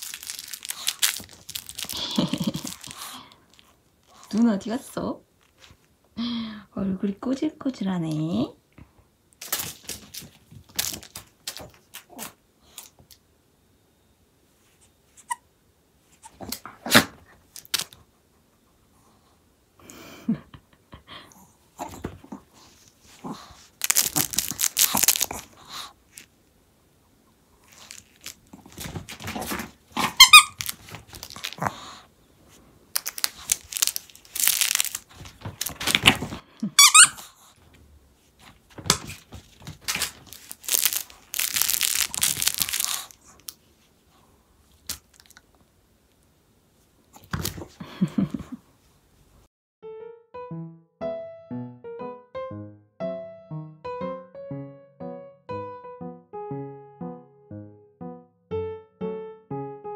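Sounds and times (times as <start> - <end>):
rustling and crinkling: 0.0 - 6.0, 9.4 - 13.2, 16.1 - 18.1, 21.8 - 26.4, 27.6 - 49.4
dog toy squeaking: 30.2 - 30.7, 36.8 - 37.3.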